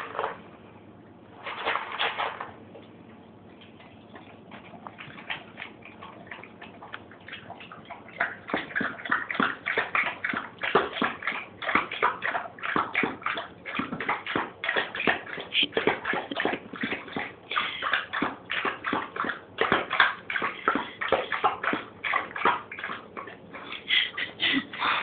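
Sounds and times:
dog eating from glass bowl: 3.5 - 23.6.

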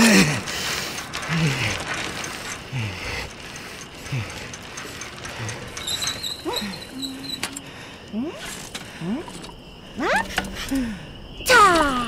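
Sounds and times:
bicycle chain clicking: 0.0 - 7.7.

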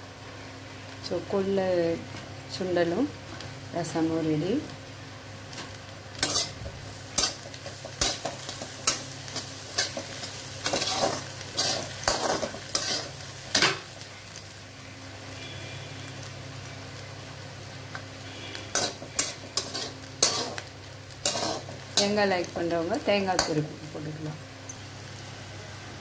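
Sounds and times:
metal spatula scraping pan: 6.2 - 6.6, 10.6 - 13.8, 18.7 - 20.6, 21.2 - 22.1.

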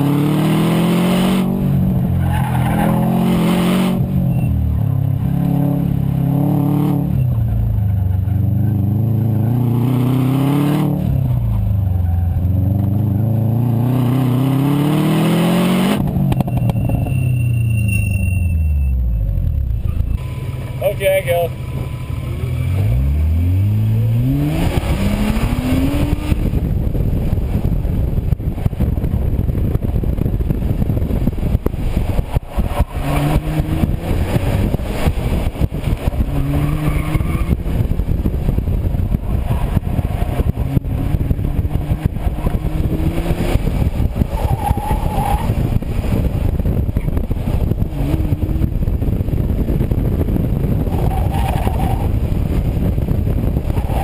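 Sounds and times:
car engine revving: 0.0 - 54.0
wind buffeting microphone: 23.6 - 54.0.

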